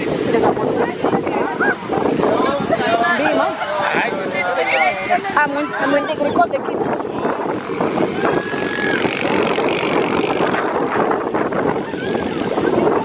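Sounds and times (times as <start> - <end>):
wind and surf rushing: 0.0 - 13.0
wind buffeting microphone: 0.0 - 13.0.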